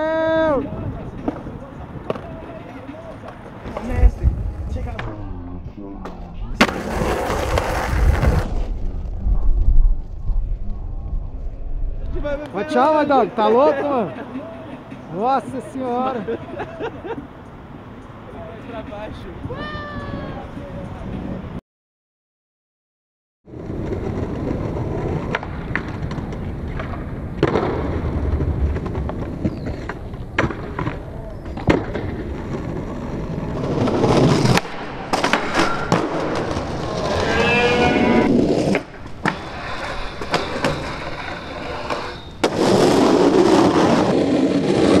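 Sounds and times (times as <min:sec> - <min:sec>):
skateboard wheels rolling on concrete: 0:00.0 - 0:21.6, 0:23.5 - 0:45.0
skateboard clacks: 0:01.1 - 0:04.2, 0:23.7 - 0:37.2.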